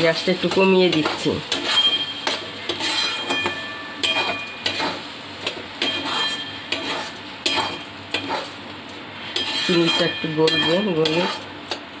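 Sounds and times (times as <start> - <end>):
metal spatula scraping a wok: 0.0 - 11.6
sharp ringing clanks: 3.0 - 4.8, 5.8 - 6.8.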